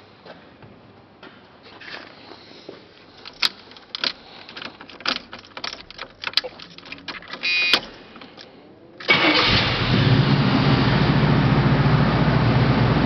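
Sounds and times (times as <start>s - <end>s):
keys rattling: 3.0s - 8.6s
clicks and knocks in car: 3.2s - 8.4s.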